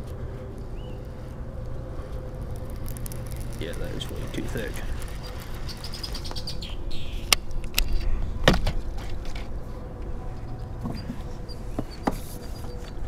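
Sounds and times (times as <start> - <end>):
birds chirping faintly: 0.3 - 7.4.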